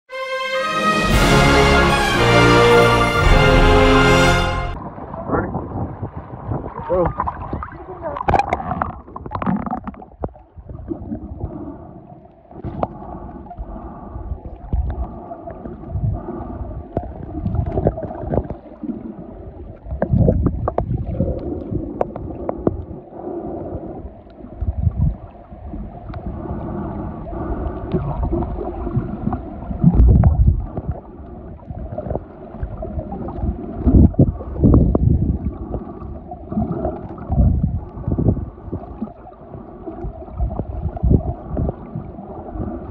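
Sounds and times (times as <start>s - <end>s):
heavy low thumps: 1.0s - 4.8s
water gurgling underwater: 4.8s - 42.9s.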